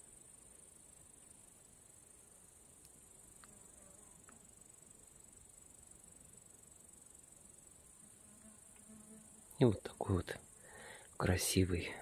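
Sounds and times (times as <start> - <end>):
insects chirring: 0.0 - 12.0
faint ticks: 2.7 - 4.8, 8.6 - 9.6.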